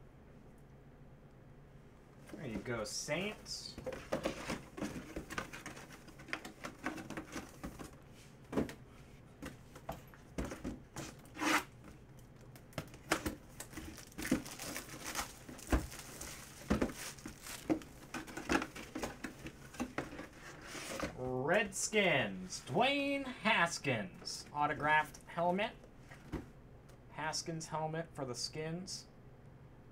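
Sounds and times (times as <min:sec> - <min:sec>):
plastic wrapping crinkling: 0:12.2 - 0:19.1.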